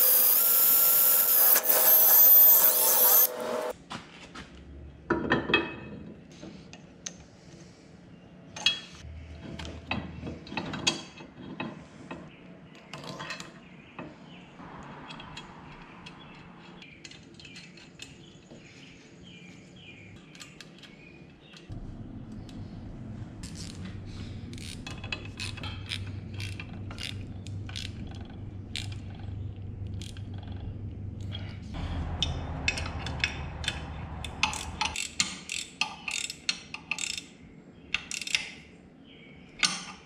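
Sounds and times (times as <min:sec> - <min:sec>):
low steady hum: 0:21.7 - 0:35.0
ratchet wrench clicking: 0:32.7 - 0:37.2.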